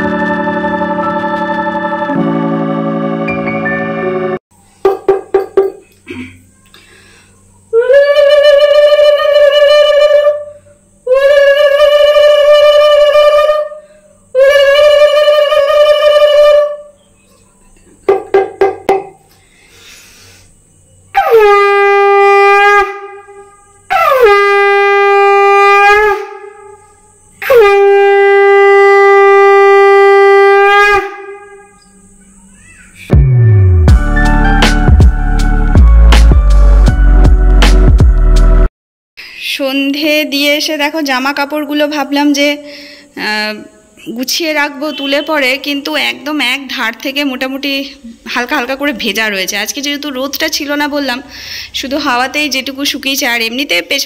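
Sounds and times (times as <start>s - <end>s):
conch shell blown: 0.0s - 4.1s, 7.8s - 17.0s, 21.2s - 31.9s
knocks: 4.8s - 5.8s, 18.1s - 19.2s
conch shell blasts: 21.2s - 26.8s, 27.4s - 31.8s.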